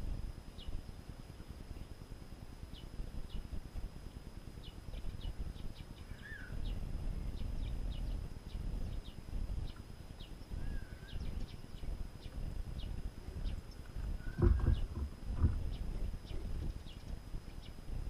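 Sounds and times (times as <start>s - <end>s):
low uneven rumble: 0.0s - 18.0s
songbirds chirping: 0.2s - 18.0s
bird warbling: 6.0s - 6.8s, 10.5s - 17.2s.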